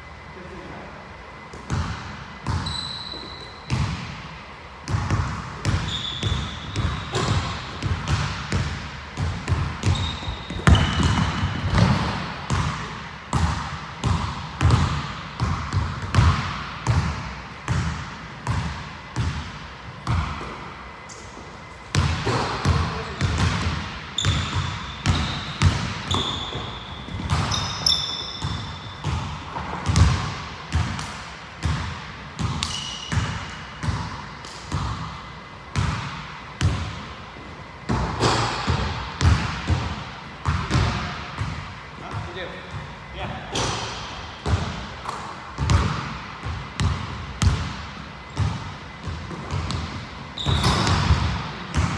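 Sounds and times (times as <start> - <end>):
shoes squeaking on floor: 2.5 - 3.8, 5.8 - 7.6, 9.8 - 12.2, 24.2 - 29.0, 32.6 - 33.2, 50.3 - 51.2
basketball bouncing on hardwood: 4.9 - 17.1, 22.0 - 31.0.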